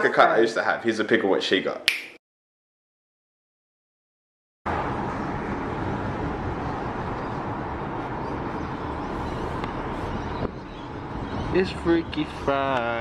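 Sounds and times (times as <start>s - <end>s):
car road and engine noise: 4.7s - 13.0s.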